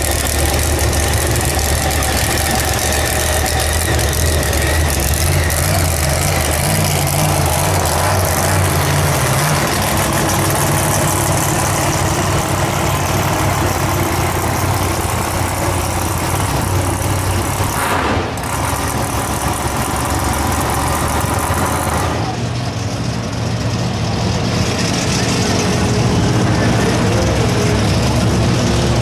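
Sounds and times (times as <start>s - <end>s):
truck engine idling: 0.0s - 29.0s.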